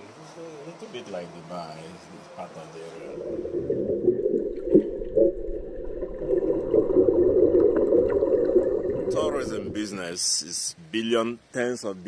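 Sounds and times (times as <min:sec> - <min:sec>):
underwater bubbles gurgling: 0:03.1 - 0:09.9.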